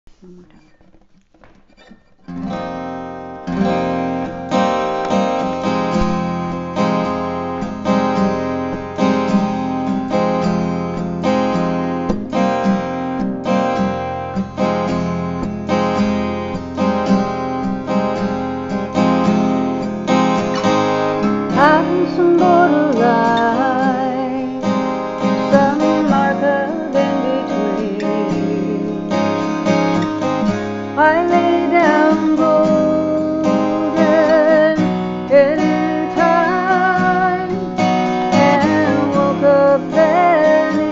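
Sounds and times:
acoustic guitar strumming: 0:00.1 - 0:40.9
woman singing with vibrato: 0:21.5 - 0:24.8, 0:25.4 - 0:29.2, 0:31.0 - 0:40.9.

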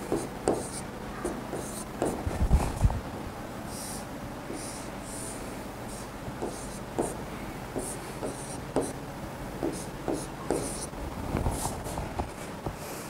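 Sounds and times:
steady low hum: 0:00.0 - 0:12.7
stylus scratching on screen: 0:09.6 - 0:10.9.

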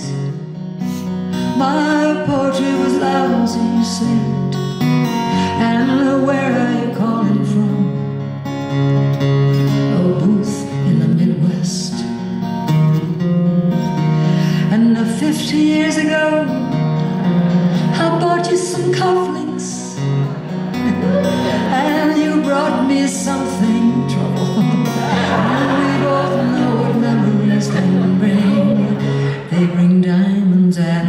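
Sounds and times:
acoustic guitar: 0:00.0 - 0:31.0
woman singing: 0:01.4 - 0:04.7, 0:05.4 - 0:08.1, 0:09.8 - 0:12.2, 0:14.6 - 0:16.8, 0:17.8 - 0:20.0, 0:21.6 - 0:31.0.

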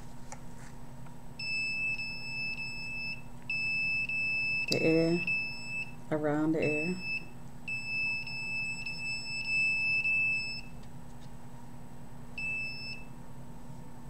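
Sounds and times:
detector alarm beeping: 0:01.4 - 0:06.0, 0:06.6 - 0:10.8, 0:12.4 - 0:13.1.

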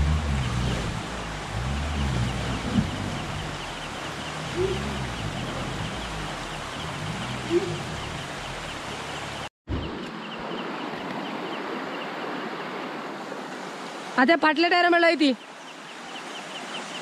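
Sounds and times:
engine yelps: 0:00.0 - 0:09.5
van engine running unevenly: 0:00.0 - 0:09.5
river water rushing: 0:00.0 - 0:17.0.

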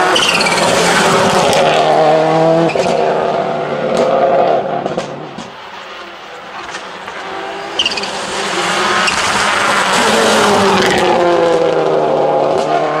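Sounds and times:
rally car engine accelerating: 0:00.0 - 0:13.0
brief high squeal: 0:00.1 - 0:00.7.

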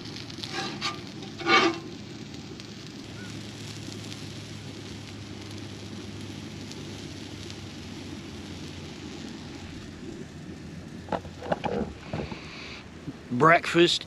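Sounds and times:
food sizzling on a griddle: 0:00.0 - 0:14.0.

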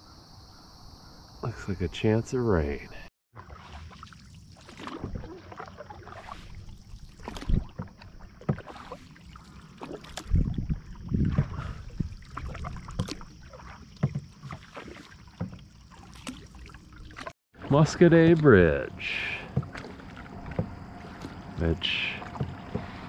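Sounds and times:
canoe paddles dipping in water: 0:03.3 - 0:23.0
paddle knocking against canoe: 0:07.2 - 0:09.0, 0:11.2 - 0:16.5, 0:17.2 - 0:23.0.

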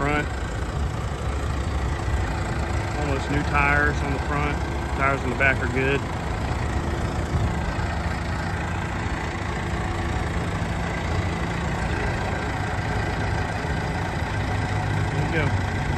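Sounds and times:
diesel engine running at low revs: 0:00.0 - 0:15.9.

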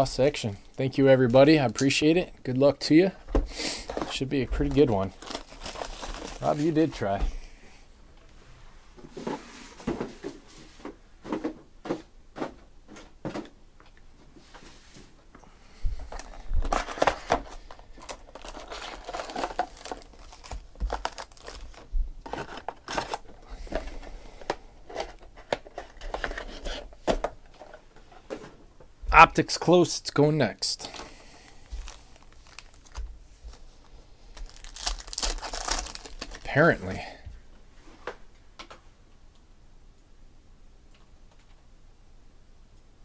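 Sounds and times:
foil packs crinkling: 0:03.8 - 0:07.0, 0:16.1 - 0:24.1, 0:30.8 - 0:37.1
cardboard box tearing: 0:34.5 - 0:36.3.

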